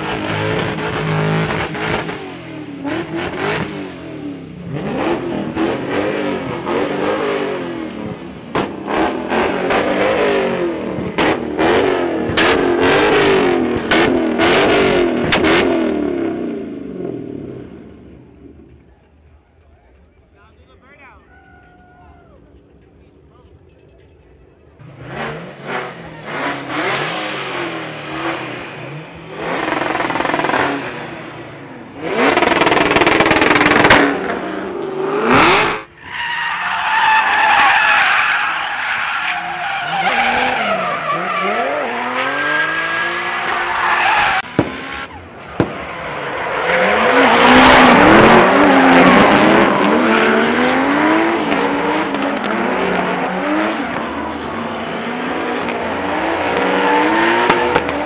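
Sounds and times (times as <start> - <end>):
car engines revving hard: 0.0 - 18.8, 24.7 - 58.0
tires squealing: 23.2 - 58.0.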